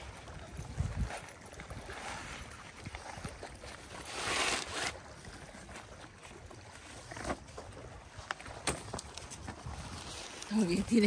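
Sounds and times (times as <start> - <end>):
wind rumble on microphone: 0.0 - 4.2, 5.0 - 11.0
nylon fabric rustle: 0.7 - 7.6.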